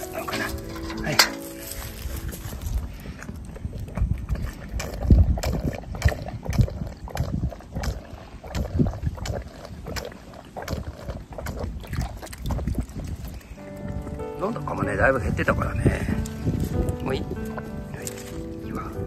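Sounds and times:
water sloshing in metal bucket: 0.0 - 2.0
goat slurping and gulping water: 2.0 - 15.2.

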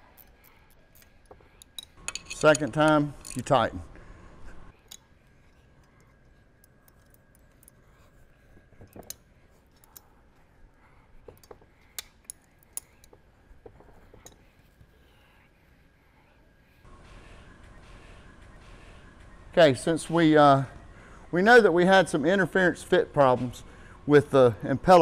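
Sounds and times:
wrench clicking on bolts: 1.0 - 3.5.

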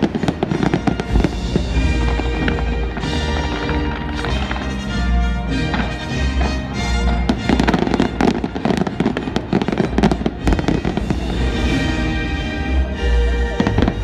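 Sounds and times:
fireworks crackling and banging: 0.0 - 14.0
music playing: 0.0 - 14.0.

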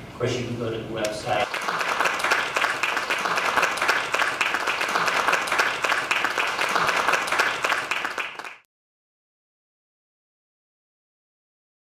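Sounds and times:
audience applauding: 1.4 - 8.7.

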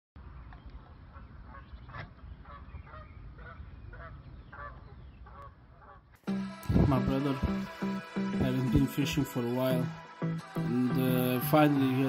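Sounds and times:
geese honking: 1.1 - 6.2.

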